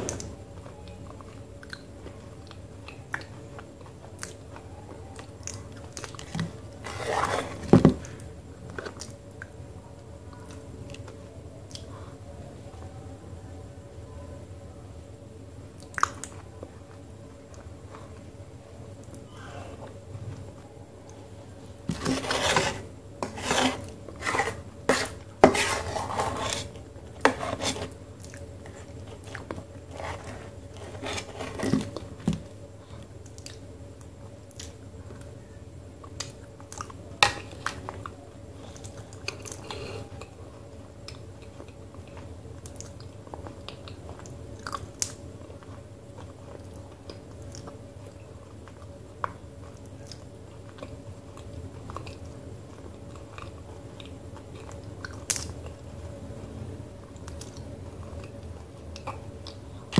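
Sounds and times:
spoon scraping in steel bowl: 21.9 - 26.7.

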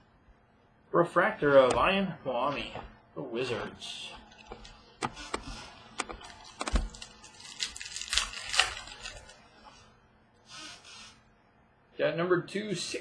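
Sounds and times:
cards rustling and flicking: 4.2 - 9.4.

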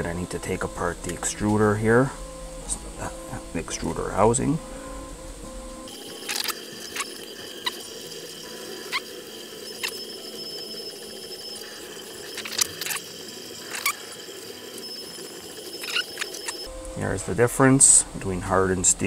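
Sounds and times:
faint high whine: 0.0 - 19.0.

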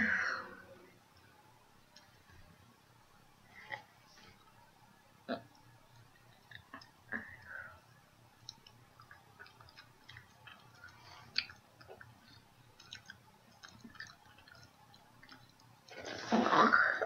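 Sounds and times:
wet chewing clicks and smacks: 5.5 - 7.0, 8.4 - 15.9.

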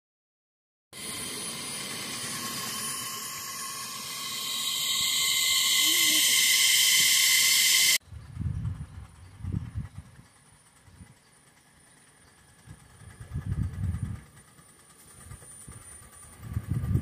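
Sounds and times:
steam locomotive hissing: 1.0 - 8.0.

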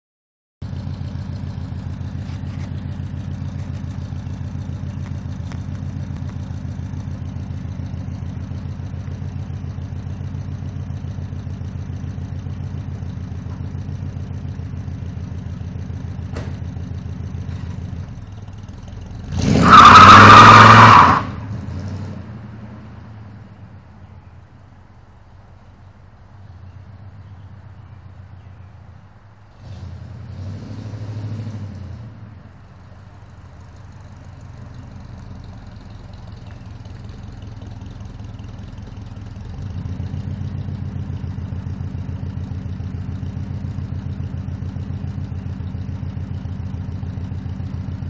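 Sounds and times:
car engine idling: 0.6 - 30.4, 31.7 - 48.0
tyre squeal and engine revving: 15.8 - 23.3, 29.4 - 33.0.

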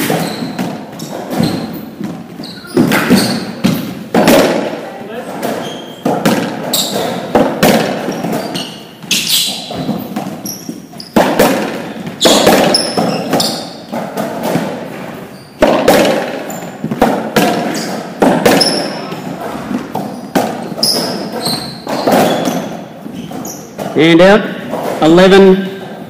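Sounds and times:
ball cracking off racquets and walls: 0.0 - 26.0
sneakers squeaking on court floor: 0.0 - 26.0.

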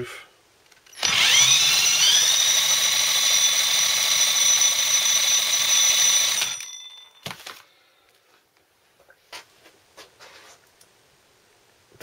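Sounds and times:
cordless drill high whine: 0.9 - 6.7.

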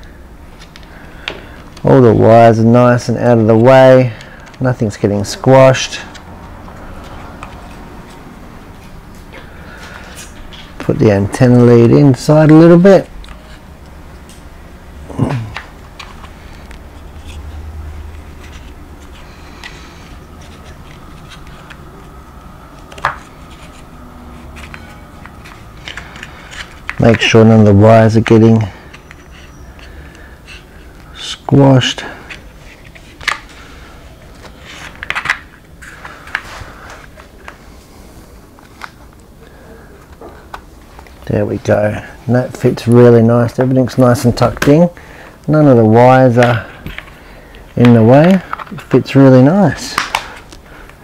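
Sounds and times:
wires and plastic box rustling: 0.5 - 14.5, 15.1 - 44.9, 45.5 - 51.0.

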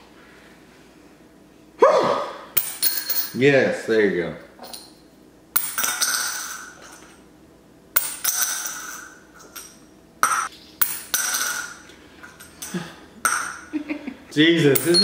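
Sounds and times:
coin clinking into glass: 2.6 - 3.4, 5.6 - 7.1, 8.0 - 12.7, 14.8 - 15.0.

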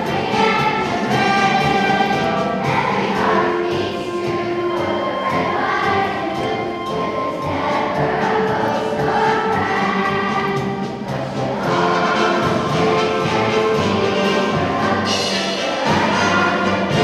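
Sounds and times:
children's choir singing: 0.0 - 17.0.

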